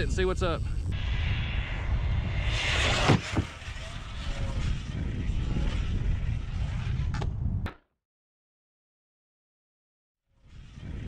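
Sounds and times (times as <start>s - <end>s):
wind rumble on microphone: 0.0s - 7.8s, 10.4s - 11.0s.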